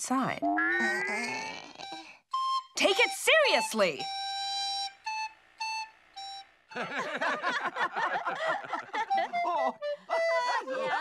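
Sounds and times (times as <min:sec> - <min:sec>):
people laughing: 0:06.8 - 0:11.0.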